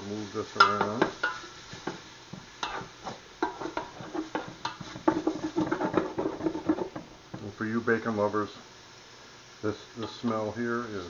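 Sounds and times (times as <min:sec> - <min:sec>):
bacon sizzling: 0:00.0 - 0:11.0
wooden spoon scraping metal pot: 0:02.6 - 0:07.1.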